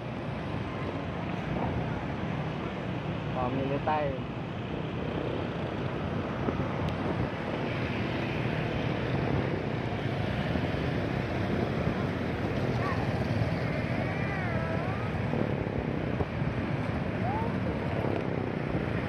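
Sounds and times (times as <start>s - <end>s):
motorbike and scooter engines: 0.0s - 19.0s
wind on microphone: 4.2s - 19.0s.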